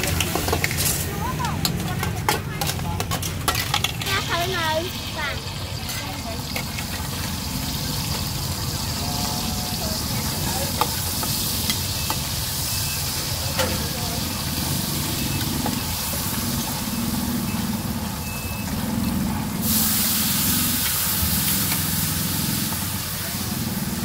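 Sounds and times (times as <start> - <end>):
wok sizzling: 0.0 - 24.0
loud hiss: 19.6 - 24.0.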